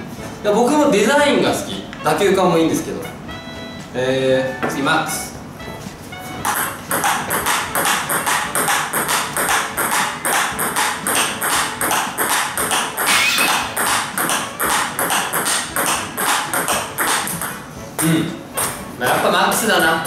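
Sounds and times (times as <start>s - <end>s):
table tennis ball clicks: 6.5s - 18.7s.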